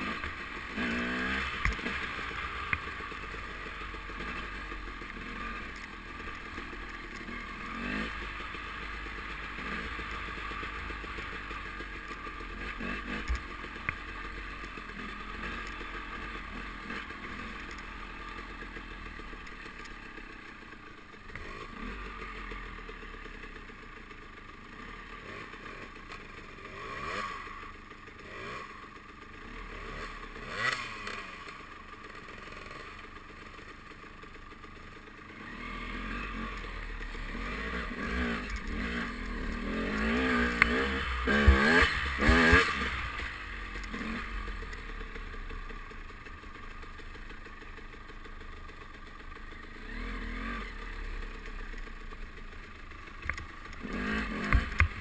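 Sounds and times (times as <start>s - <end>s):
dirt bike engine revving: 0.0s - 11.9s, 12.5s - 19.2s, 21.3s - 22.6s, 24.7s - 25.9s, 26.6s - 27.6s, 28.2s - 28.8s, 29.4s - 31.6s, 32.3s - 33.0s, 35.3s - 45.2s, 49.6s - 51.5s, 53.2s - 55.0s
bike clattering over rough trail: 37.1s - 44.2s.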